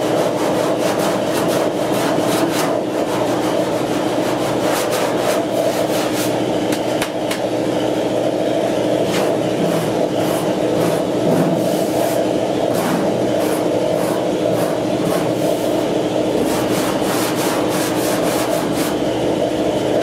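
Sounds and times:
hand tool scraping filler: 0.0s - 6.4s, 9.1s - 19.0s
steady hum: 0.0s - 20.0s.

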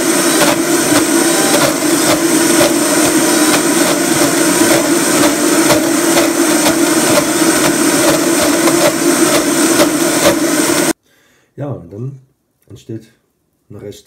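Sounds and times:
blender churning thick dough: 0.0s - 11.0s.

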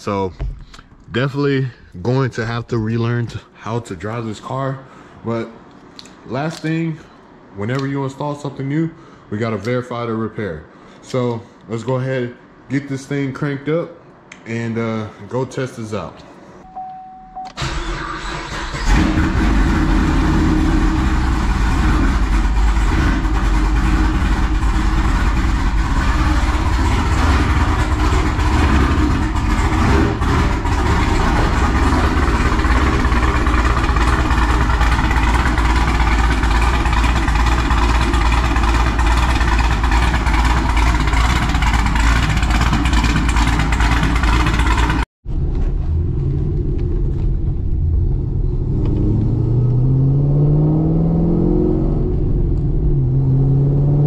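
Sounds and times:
car engine idling: 18.5s - 48.5s.

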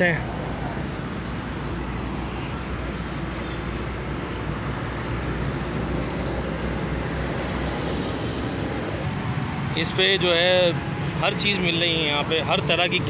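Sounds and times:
low rumble of traffic: 0.0s - 13.0s.

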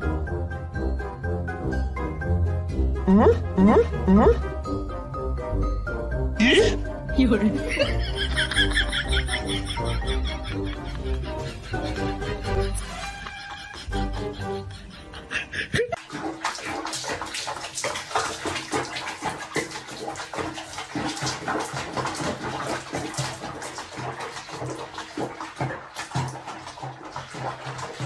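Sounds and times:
water splashing in a tub: 6.4s - 14.2s, 15.7s - 28.0s.

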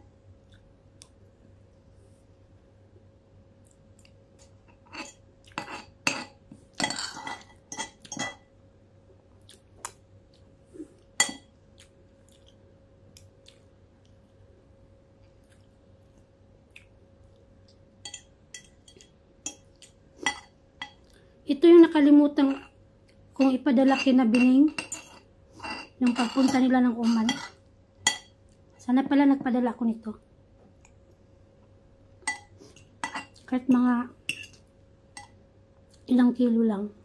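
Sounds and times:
cutlery clinking on a ceramic plate: 4.8s - 8.5s, 23.9s - 28.4s.

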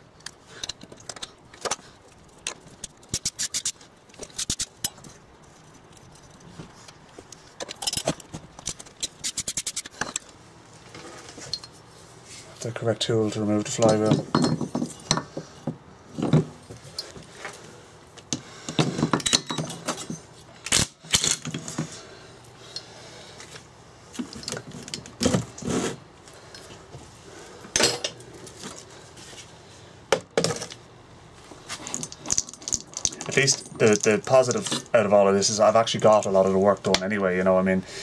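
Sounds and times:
metal tools clinking and knocking: 7.6s - 9.2s, 11.4s - 11.8s, 13.7s - 15.4s, 18.7s - 20.3s, 27.8s - 28.2s, 31.8s - 34.9s.

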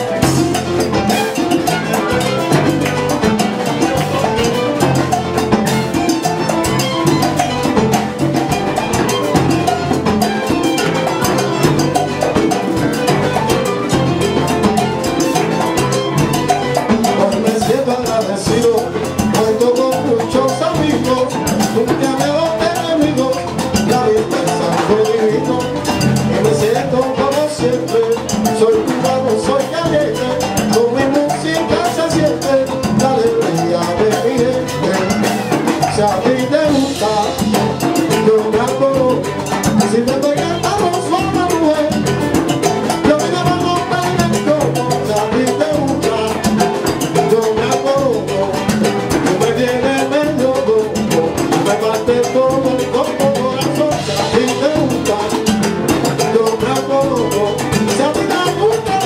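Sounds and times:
salsa band playing: 0.0s - 59.0s
person singing: 16.9s - 42.1s, 43.0s - 59.0s.

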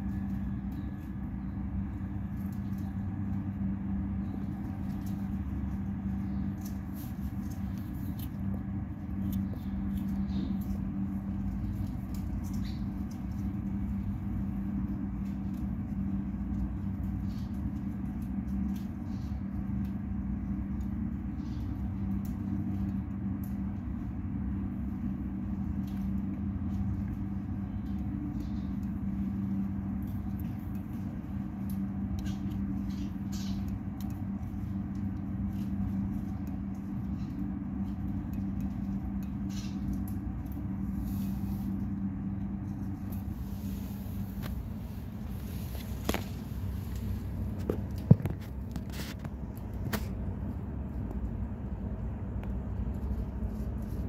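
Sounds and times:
low mechanical hum: 0.0s - 54.0s.

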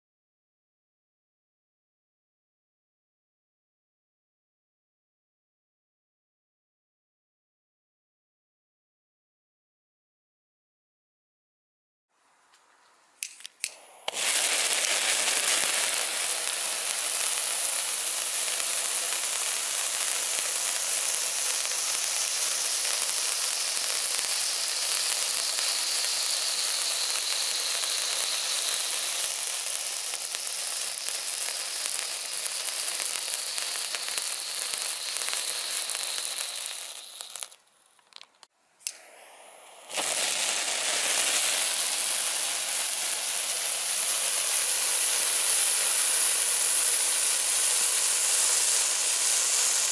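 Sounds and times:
sharp clicks: 13.2s - 14.2s
firework fountain hissing and crackling: 13.6s - 49.9s.

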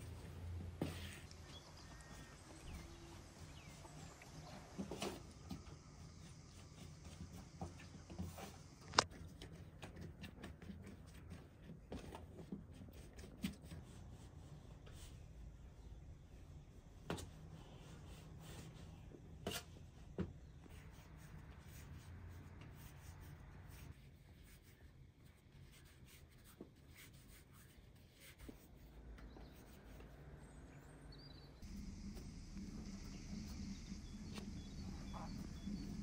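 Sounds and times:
steady low hum: 28.4s - 36.0s.

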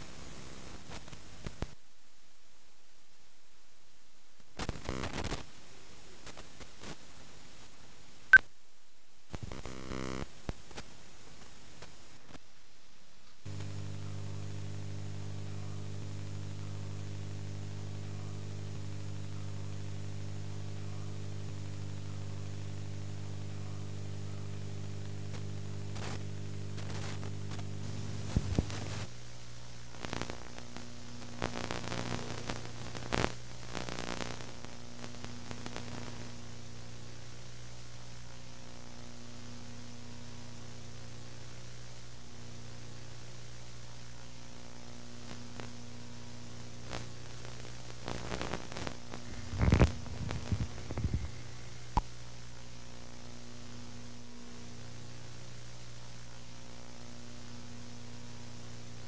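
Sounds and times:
crackling pops: 0.0s - 1.8s, 4.4s - 5.5s, 6.2s - 7.0s, 13.2s - 16.3s, 24.8s - 29.1s, 29.9s - 36.3s, 45.2s - 45.8s, 46.8s - 52.2s
analog static hiss: 0.0s - 59.0s.

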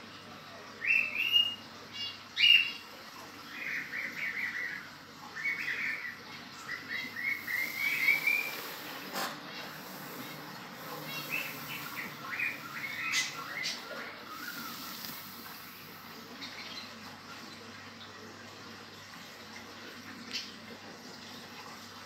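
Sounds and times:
small birds chirping: 0.5s - 18.2s.

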